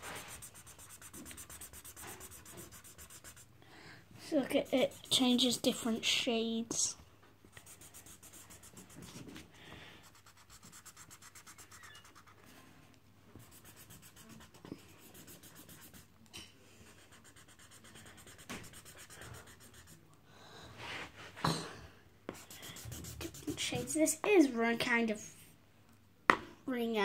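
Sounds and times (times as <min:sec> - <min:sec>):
marker scribbling on paper: 0:00.0 - 0:03.5, 0:04.5 - 0:05.8, 0:07.5 - 0:09.2, 0:10.0 - 0:12.4, 0:13.4 - 0:16.1, 0:16.9 - 0:20.0, 0:22.3 - 0:24.0.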